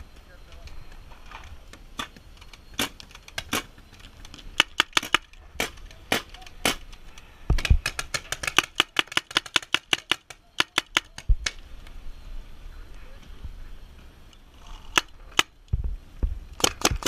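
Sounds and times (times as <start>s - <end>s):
paintball marker firing: 4.5s - 11.6s, 16.6s - 17.0s.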